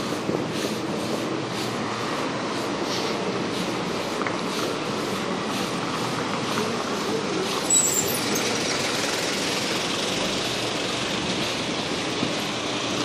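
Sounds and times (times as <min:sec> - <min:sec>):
bus running close by: 0:00.0 - 0:13.0
road traffic noise: 0:00.0 - 0:13.0
high squeal: 0:07.7 - 0:08.6.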